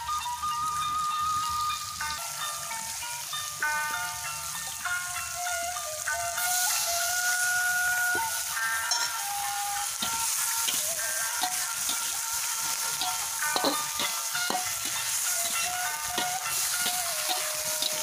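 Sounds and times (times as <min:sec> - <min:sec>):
background music: 0:00.0 - 0:18.0
vegetables sizzling in wok: 0:00.0 - 0:18.0
metal spatula scraping pan: 0:08.1 - 0:18.0.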